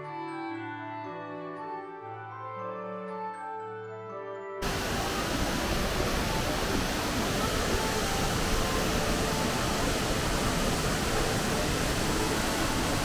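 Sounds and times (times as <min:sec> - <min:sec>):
waterfall rushing: 0:04.6 - 0:13.0.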